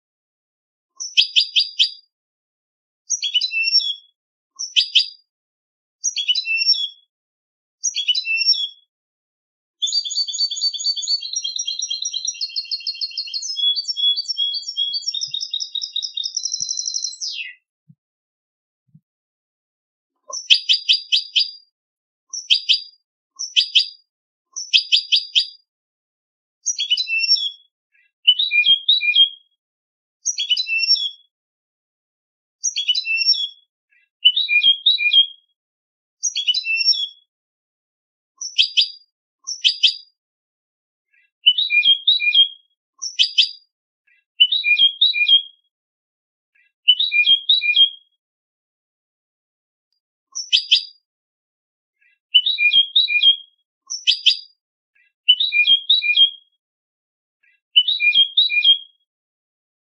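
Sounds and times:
finch twittering song: 1.0s - 2.1s, 3.1s - 5.2s, 6.0s - 7.1s, 7.8s - 8.9s, 9.8s - 17.6s, 20.2s - 21.7s, 22.3s - 25.6s, 26.6s - 27.6s, 30.3s - 31.2s, 32.6s - 33.6s, 34.2s - 35.2s, 36.2s - 37.2s, 38.4s - 40.1s, 41.4s - 43.7s, 44.4s - 45.4s, 46.9s - 47.9s, 50.3s - 51.0s, 52.3s - 54.6s, 55.3s - 56.3s, 57.8s - 58.8s.

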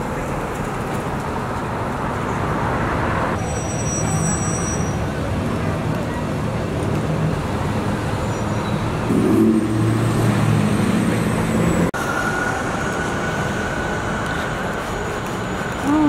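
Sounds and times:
city street traffic: 0.0s - 16.0s
heavy vehicle engine running: 8.8s - 16.0s.

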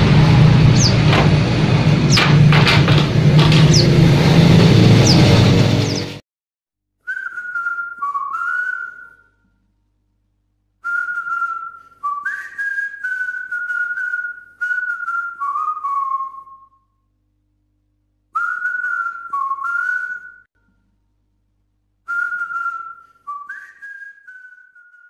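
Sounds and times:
person whistling a tune: 7.0s - 9.4s, 10.8s - 16.9s, 18.4s - 20.5s, 22.1s - 25.0s.

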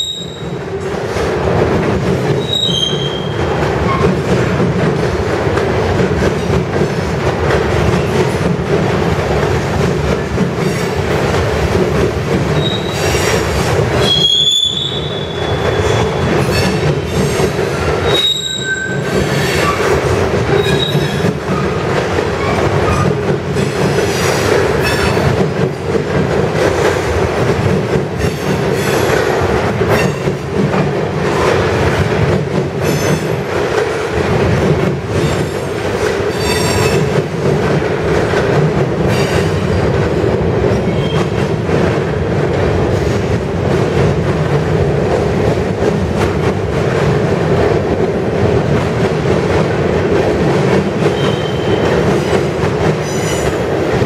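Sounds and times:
rail clacks: 0.0s - 54.0s
train wheels rumbling on rail: 0.0s - 54.0s
wheel squeals: 2.4s - 4.1s, 12.6s - 13.4s, 18.0s - 19.0s.

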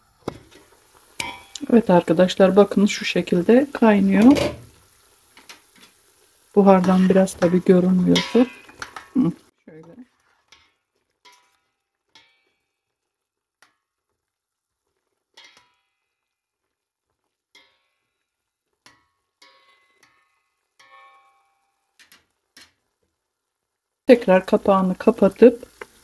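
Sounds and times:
metal spoon clinking in a pot: 1.2s - 1.6s, 8.2s - 9.1s, 10.5s - 12.8s, 18.8s - 22.2s.

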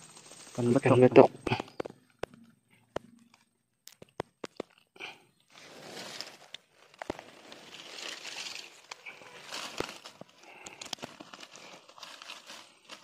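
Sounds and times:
rustling of dry grass and leaves: 0.0s - 13.0s.

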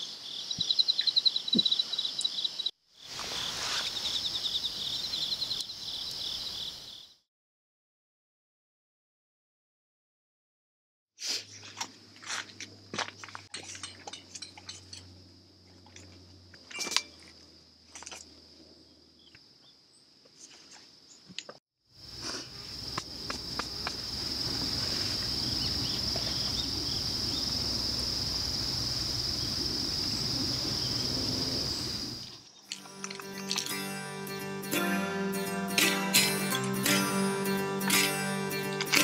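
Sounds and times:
background hiss: 0.0s - 6.9s
insect chorus trilling: 0.0s - 7.2s, 22.0s - 32.6s.

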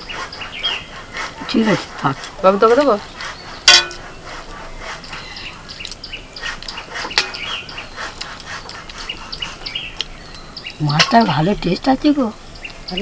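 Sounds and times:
birds chirping: 0.0s - 13.0s
clicks on steel plates: 3.7s - 4.1s, 7.1s - 7.5s
sharp clink: 3.7s - 4.1s.

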